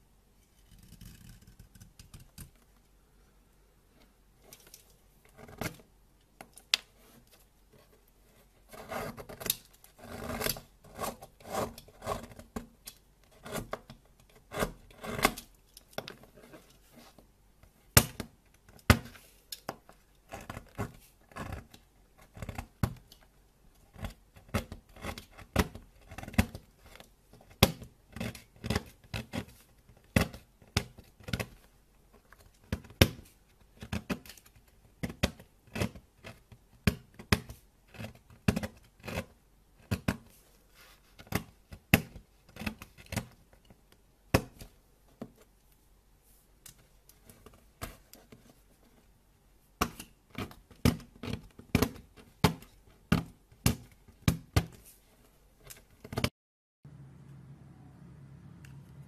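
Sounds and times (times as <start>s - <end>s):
knife cutting brittle soap: 8.5s - 16.8s, 17.9s - 31.5s, 32.4s - 40.4s, 41.2s - 43.6s.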